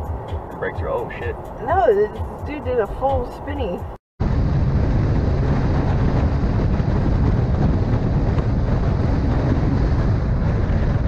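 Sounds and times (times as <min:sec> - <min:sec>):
road and engine noise: 0:00.0 - 0:11.0
wind buffeting microphone: 0:00.0 - 0:11.0.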